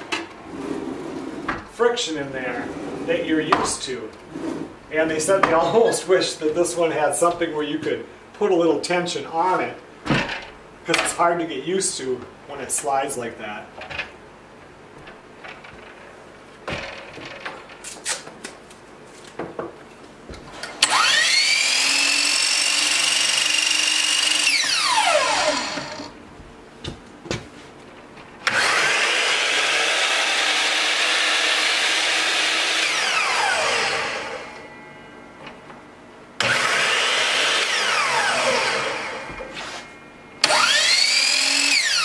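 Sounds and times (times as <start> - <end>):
miter saw motor whining: 20.8 - 26.2, 28.4 - 34.6, 36.4 - 39.8, 40.4 - 42.0.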